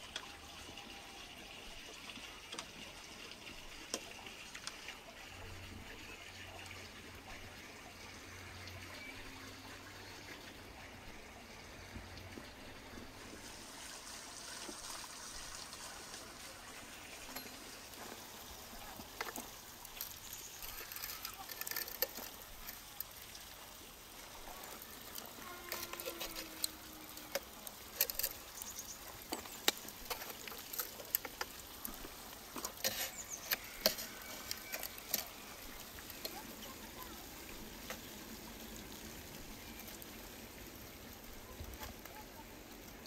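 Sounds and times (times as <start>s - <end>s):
metal spits clicking on bricks: 25.1s - 36.7s.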